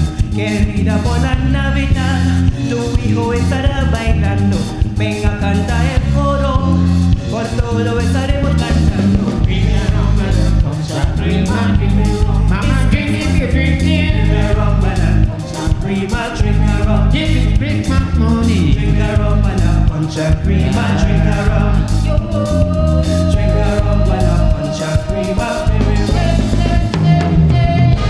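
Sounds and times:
live band with driving bass: 0.0s - 28.0s
woman and man singing duet: 0.2s - 28.0s.

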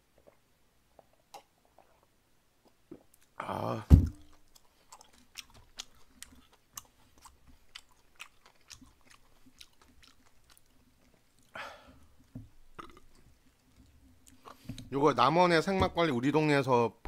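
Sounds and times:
wet chewing mouth clicks: 4.3s - 11.6s, 12.2s - 14.8s.

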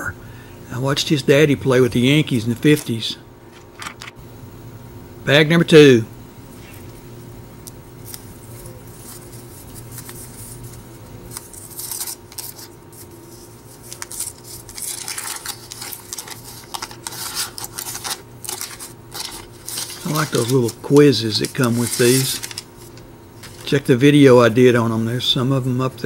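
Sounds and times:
wax paper wrapper crinkling: 8.0s - 24.0s.

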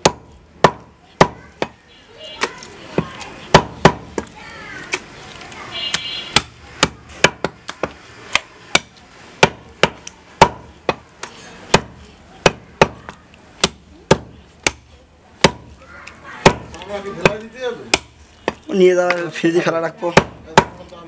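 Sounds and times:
cleaver chopping meat on wood: 0.0s - 1.8s, 2.4s - 4.3s, 6.3s - 15.7s, 16.4s - 19.2s, 20.2s - 20.9s.

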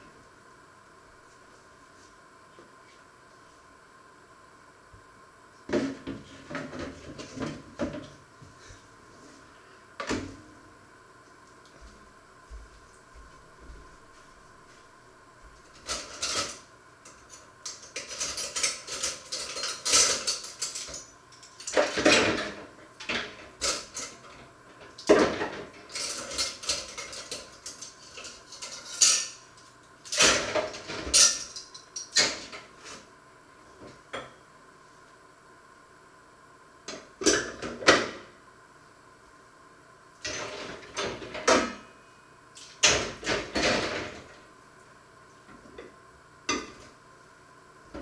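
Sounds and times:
pots and cutlery clattering: 17.7s - 24.2s, 25.1s - 29.4s.

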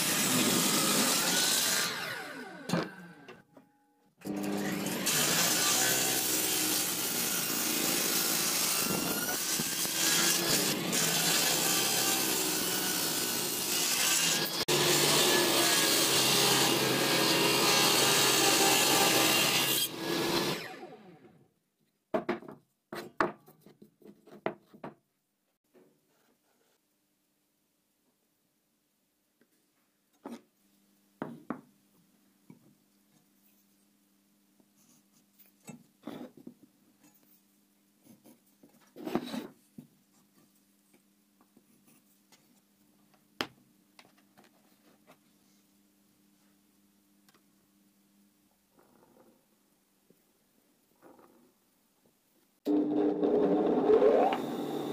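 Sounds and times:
power saw running and winding down: 52.7s - 54.9s.

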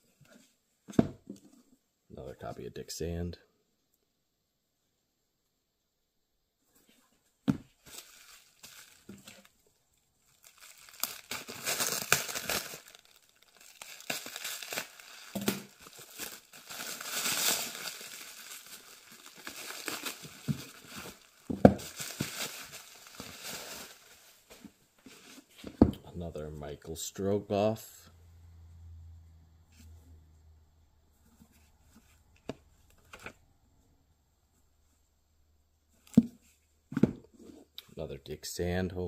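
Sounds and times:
books set down on wooden table: 0.9s - 1.4s, 25.6s - 26.0s, 36.1s - 37.3s
plastic wrap crinkling: 7.8s - 9.6s, 10.2s - 25.6s.

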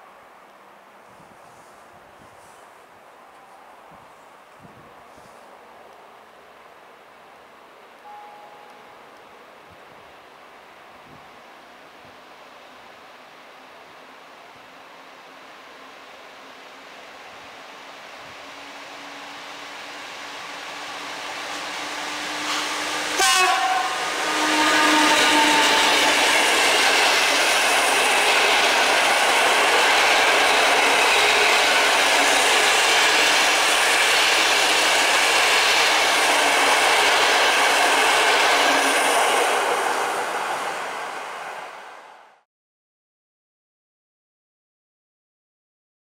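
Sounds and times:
train wheels rushing on rails: 16.5s - 42.4s
locomotive horn: 21.6s - 26.2s.

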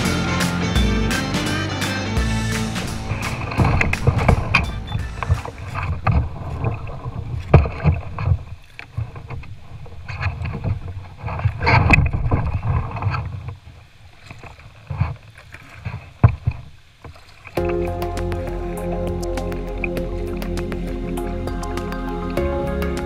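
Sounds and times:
paddle strokes splashing water: 2.4s - 22.5s
wind rumbling on microphone: 2.8s - 16.8s.

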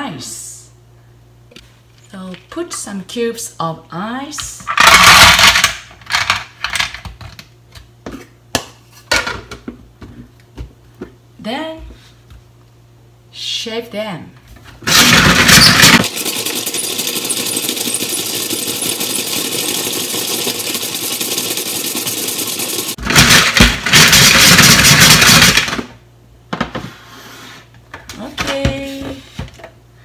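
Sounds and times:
ice shaving machine grinding: 14.9s - 25.6s.

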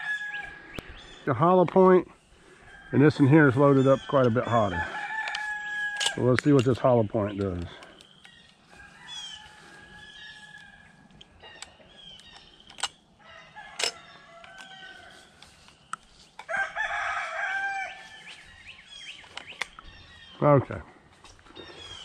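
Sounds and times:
rooster crowing: 0.0s - 0.8s, 2.6s - 6.2s, 8.7s - 11.1s, 13.2s - 15.4s, 16.4s - 18.4s
small birds chirping: 0.2s - 22.0s
sharp clicks: 11.1s - 13.0s, 19.2s - 19.9s.

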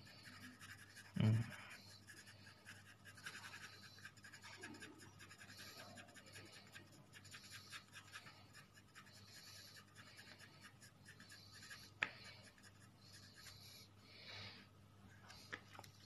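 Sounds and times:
pencil scratching on paper: 0.0s - 13.9s
low steady hum: 0.0s - 16.0s.

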